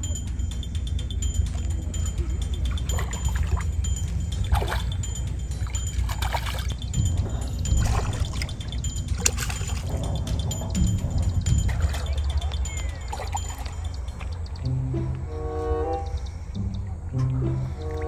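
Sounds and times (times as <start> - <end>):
steady low rumble: 0.0 - 18.0
fish thrashing in water: 2.8 - 14.4.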